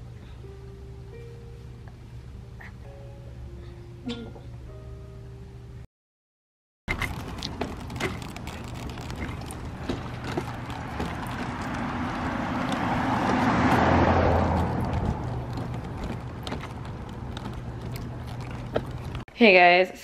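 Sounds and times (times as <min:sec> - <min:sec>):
stroller wheels rolling and clicking: 0:06.9 - 0:19.3
car driving past: 0:09.3 - 0:19.2.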